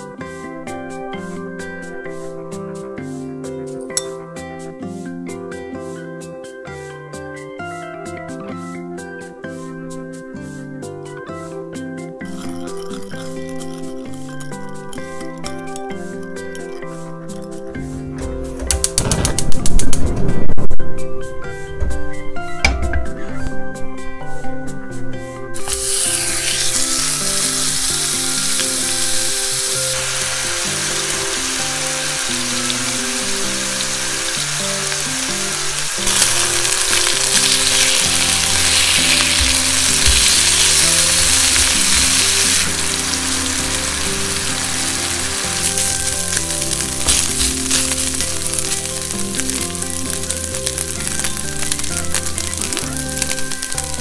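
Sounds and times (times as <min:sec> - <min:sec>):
meat sizzling in a frying pan: 0:25.6 - 0:54.0.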